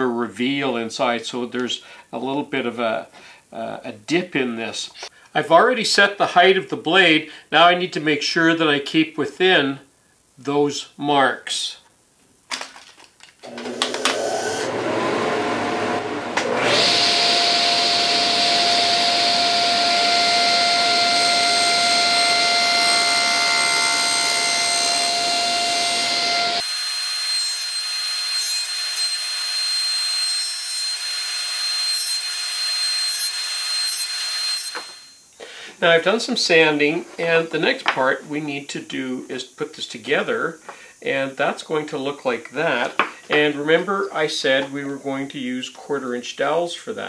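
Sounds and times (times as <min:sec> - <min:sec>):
table saw running: 0:13.5 - 0:35.1.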